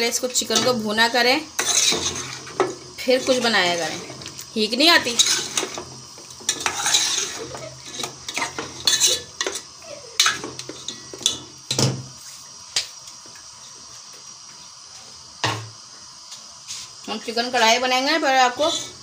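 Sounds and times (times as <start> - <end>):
frying hiss: 0.0 - 19.0
ladle scraping metal pot: 1.5 - 9.6.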